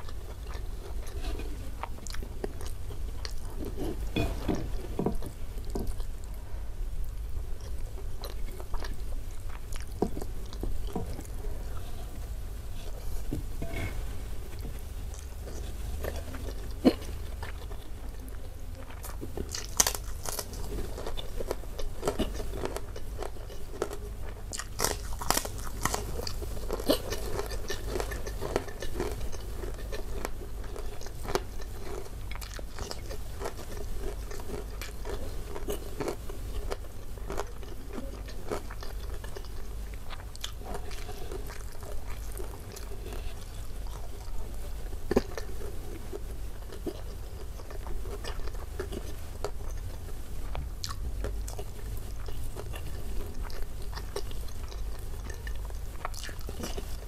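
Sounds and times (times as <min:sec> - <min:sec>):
wet chewing with mouth clicks: 0:00.0 - 0:06.4, 0:07.0 - 0:57.0
low steady hum: 0:00.0 - 0:57.0.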